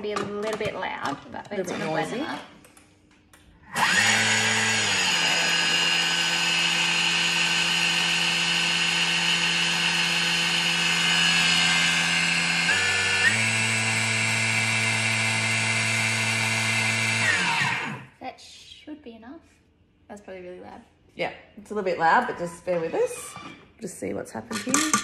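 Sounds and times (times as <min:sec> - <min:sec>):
food processor motor whining: 0:03.7 - 0:18.2.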